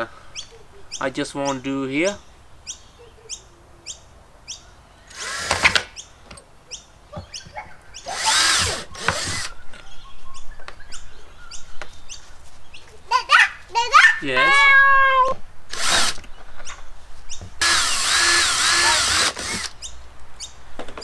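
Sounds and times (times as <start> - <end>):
cordless drill boring into plastic: 8.1 - 9.5, 15.7 - 16.2, 17.6 - 19.7.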